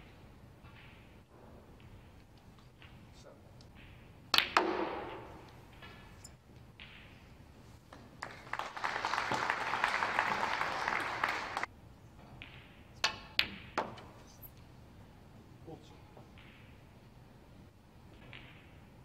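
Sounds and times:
snooker balls clicking: 1.8 - 9.6
audience applauding: 8.2 - 11.7.

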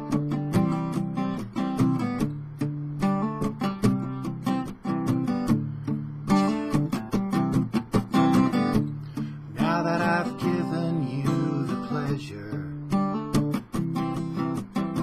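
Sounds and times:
acoustic guitar strummed: 0.0 - 15.0
man singing: 9.5 - 13.0.

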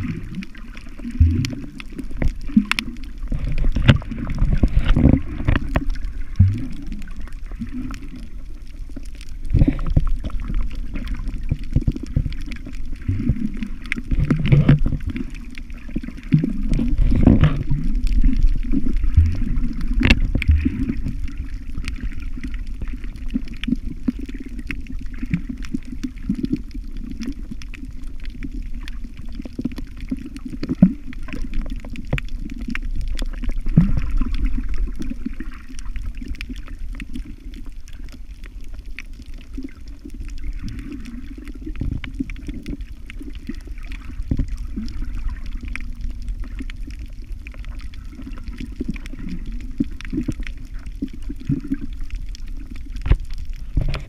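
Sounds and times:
underwater rumble with gurgling: 0.0 - 54.0
sharp knocks underwater: 1.1 - 6.9, 9.5 - 10.6, 11.4 - 15.3, 16.3 - 21.2, 53.0 - 54.0.

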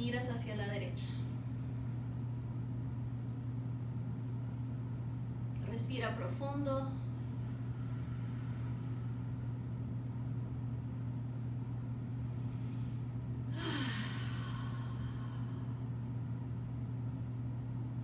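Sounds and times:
steady low hum: 0.0 - 18.0
deep breathy sigh: 12.4 - 15.9.

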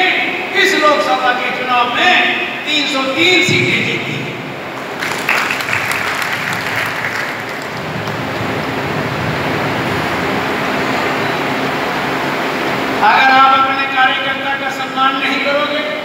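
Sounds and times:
audience applauding: 4.8 - 8.9.

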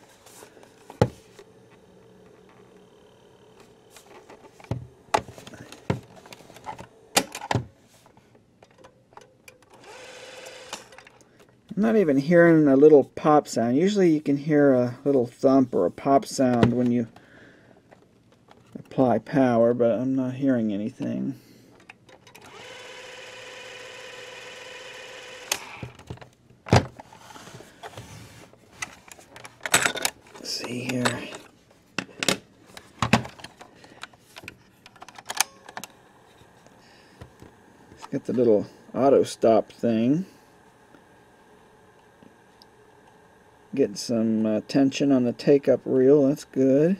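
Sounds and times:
cassette motor whining: 0.0 - 11.5, 21.8 - 46.9.

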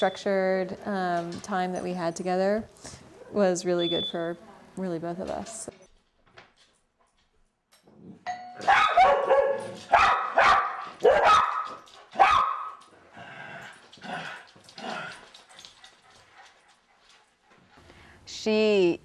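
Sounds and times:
doorbell chime: 8.3 - 8.6
dog barking: 8.6 - 12.8.

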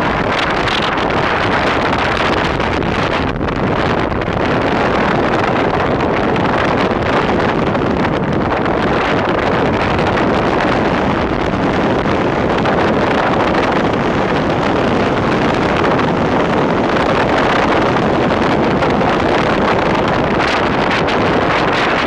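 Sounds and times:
wind on microphone: 0.0 - 22.0.

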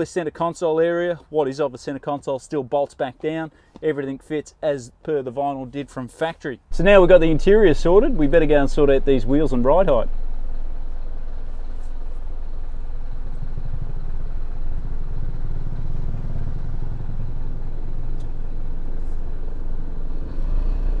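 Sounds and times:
truck diesel engine rumbling: 6.6 - 21.0.

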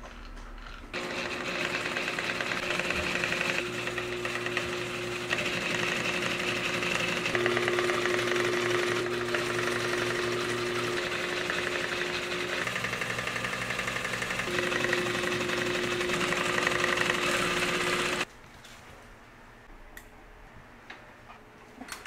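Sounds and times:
sewing machine running: 0.9 - 18.3.

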